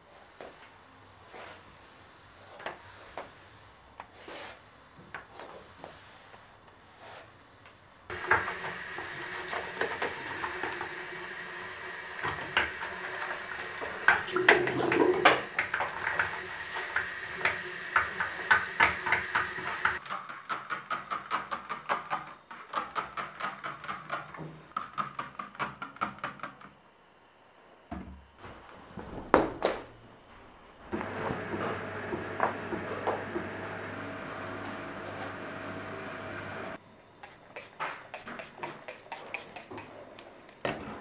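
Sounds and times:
scrubbing strokes: 0:37.2 - 0:40.3.

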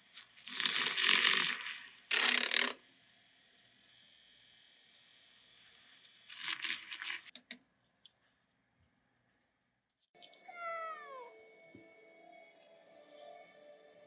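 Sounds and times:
milk frother whisking: 0:00.0 - 0:02.8, 0:06.2 - 0:07.3.

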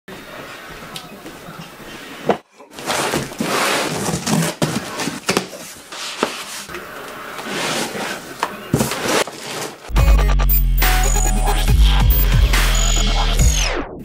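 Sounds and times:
cardboard and foam rustling: 0:02.7 - 0:09.9.

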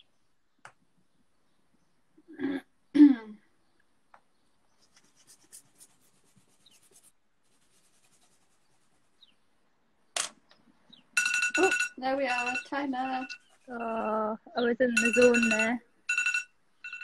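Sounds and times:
pen scratching on paper: 0:04.8 - 0:09.3.

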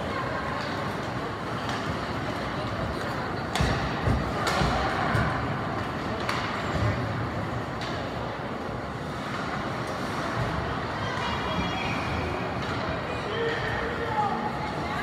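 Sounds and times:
rink crowd hubbub: 0:00.0 - 0:15.0
hockey sticks and puck knocks: 0:03.0 - 0:07.0, 0:07.6 - 0:08.3.

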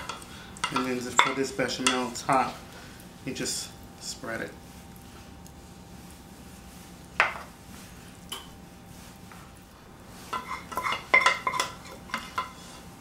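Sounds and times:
wooden spoon scraping metal pan: 0:10.2 - 0:12.9.

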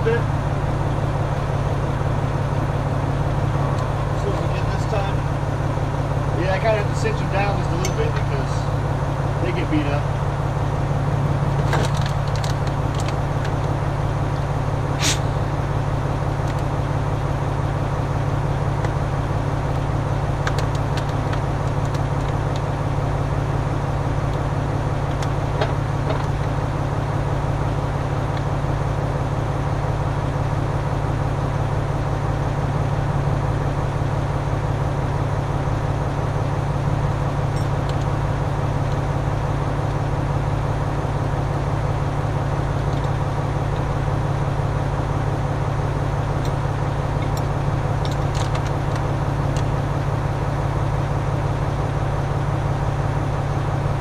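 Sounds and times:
engine idling: 0:00.0 - 0:54.0
gas cylinders being handled: 0:11.5 - 0:13.8.

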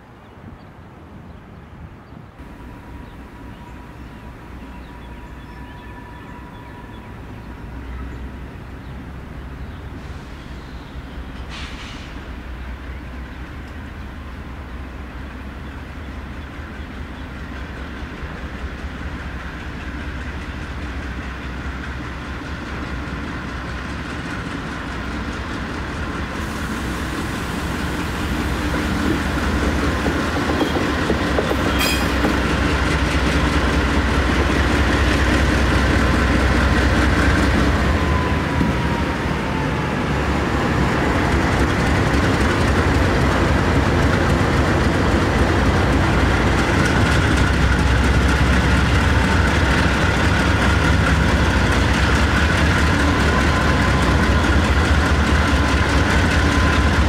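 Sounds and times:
diesel locomotives rumbling: 0:00.0 - 0:57.0
high squeak: 0:31.7 - 0:32.3.

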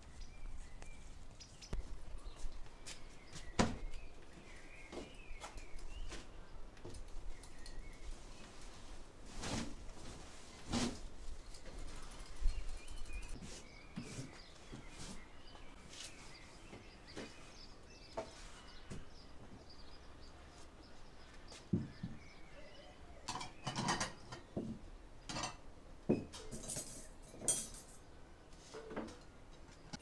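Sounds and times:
plates and forks set down: 0:25.3 - 0:28.0.

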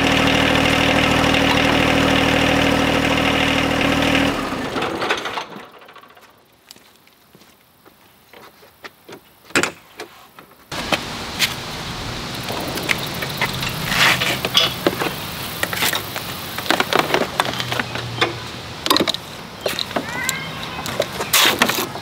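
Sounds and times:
hardware clanking: 0:12.4 - 0:22.0.

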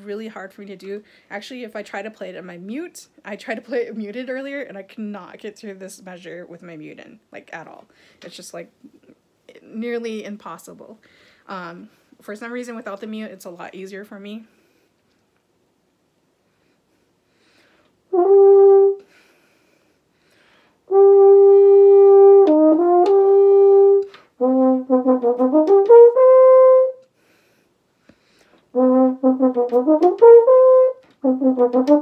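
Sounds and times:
french horn notes: 0:18.1 - 0:19.2, 0:20.9 - 0:27.1, 0:28.7 - 0:32.0.

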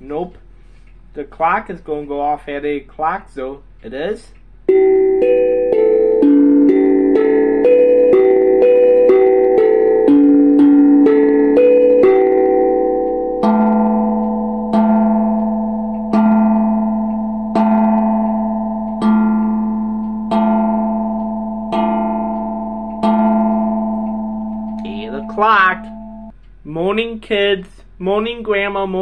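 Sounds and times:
clock chime tune: 0:04.7 - 0:26.3
deep clock bell strikes: 0:04.7 - 0:26.4.

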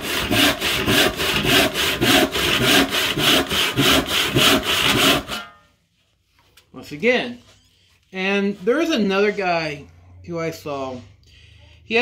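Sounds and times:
hand saw cutting board: 0:00.0 - 0:05.6.

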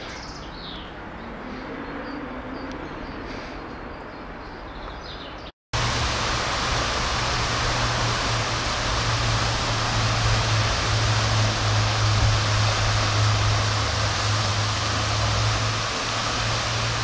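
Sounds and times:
low hum: 0:05.8 - 0:17.0
steady rushing noise: 0:05.8 - 0:17.0.

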